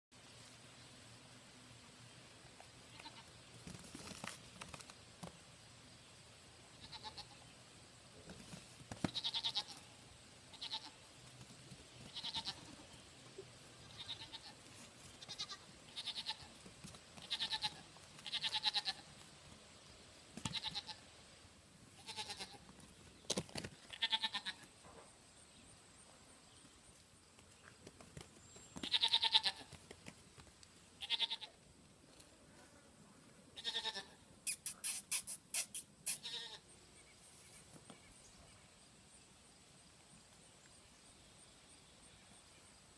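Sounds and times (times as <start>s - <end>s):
goat kids bleating: 2.9s - 3.3s, 6.8s - 7.4s, 9.0s - 9.9s, 10.5s - 11.0s, 12.0s - 12.8s, 13.8s - 16.6s, 17.2s - 19.1s, 20.4s - 21.0s, 22.0s - 22.7s, 23.9s - 24.7s, 28.8s - 29.8s, 31.0s - 31.6s, 33.6s - 34.2s, 36.0s - 36.6s.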